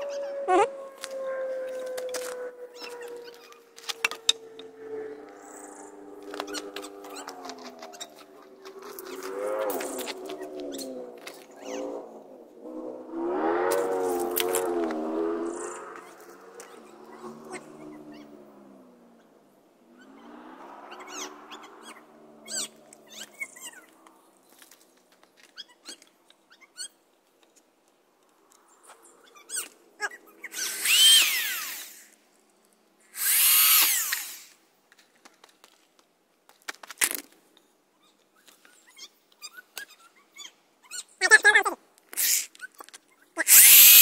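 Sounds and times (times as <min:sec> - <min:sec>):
power drill driving screws: 0:30.5 - 0:32.1, 0:33.1 - 0:34.6, 0:43.5 - 0:44.0.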